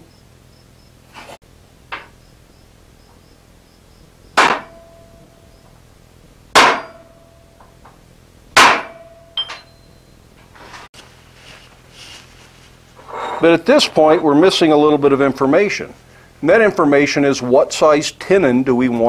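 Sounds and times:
hammer striking punch with ring: 0:04.4 - 0:05.3, 0:06.6 - 0:07.4, 0:08.6 - 0:09.9
light metal clink: 0:09.0 - 0:10.2.

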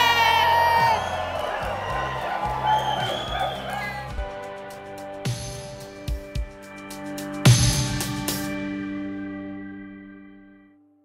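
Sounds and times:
crowd cheering and whooping: 0:00.0 - 0:04.3
music with steady beat: 0:01.0 - 0:09.3.

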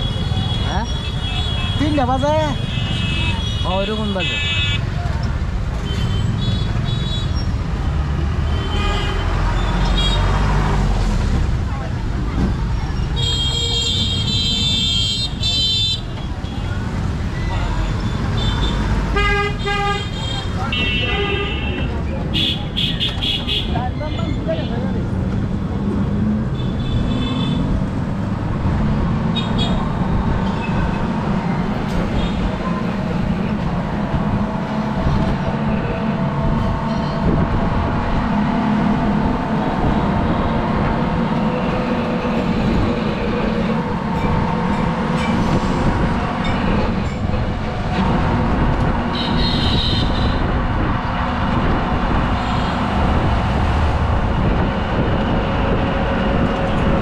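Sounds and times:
rickshaw rumbling on wet road: 0:00.0 - 0:57.0
traffic horn beeps: 0:49.1 - 0:50.4.

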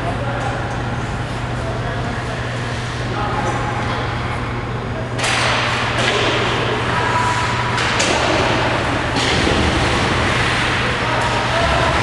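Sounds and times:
hockey sticks and puck clacking: 0:05.2 - 0:12.0.

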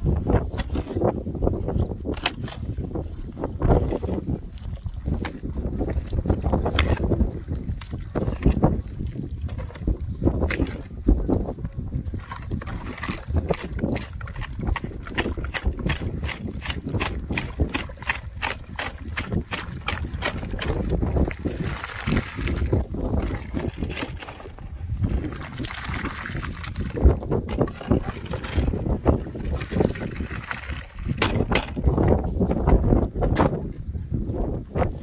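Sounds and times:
scraping and sloshing wet mortar: 0:02.1 - 0:32.0
shovel chopping wet cement: 0:13.2 - 0:21.2.

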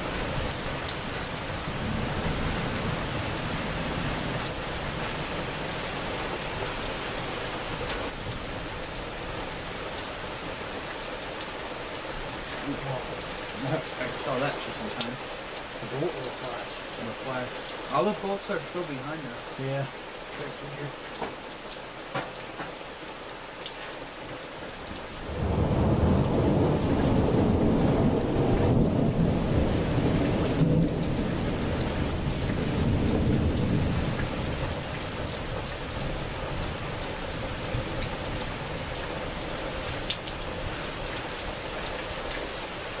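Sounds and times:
steady rain: 0:00.0 - 0:43.0
thunder rumble: 0:25.3 - 0:34.1.

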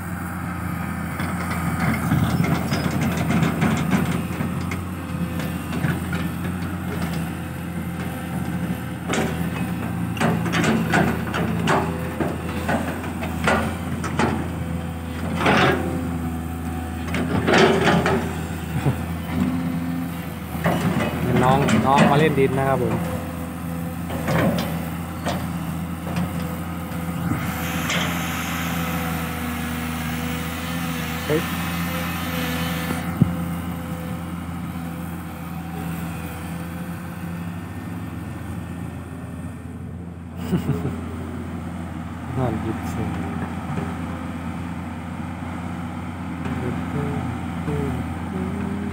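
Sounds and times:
excavator diesel engine running: 0:00.0 - 0:48.9.

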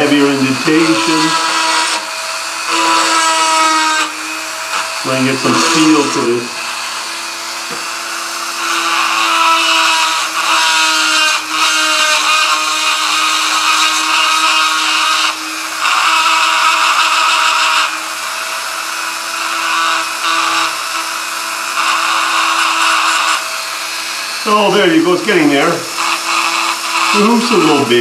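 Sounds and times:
grinding hiss: 0:00.0 - 0:28.0
rotary tool whine: 0:00.0 - 0:28.0.

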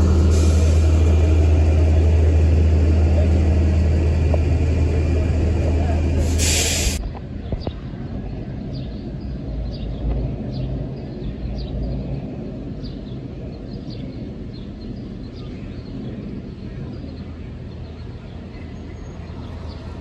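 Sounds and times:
buses idling: 0:00.0 - 0:13.8.

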